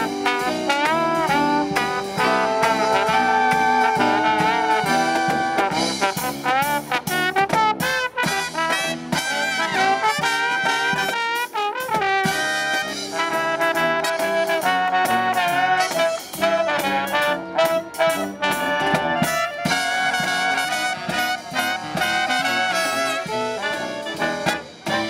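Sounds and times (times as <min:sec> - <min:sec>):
saxophones: 0:00.0 - 0:06.6, 0:12.2 - 0:25.0
drums: 0:00.0 - 0:25.0
trombones: 0:00.0 - 0:25.0
trumpets: 0:00.0 - 0:25.0.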